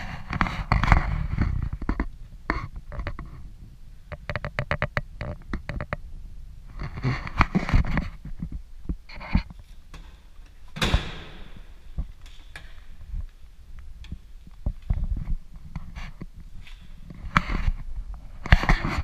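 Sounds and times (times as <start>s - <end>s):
knocks and rustling: 6.7s - 13.4s.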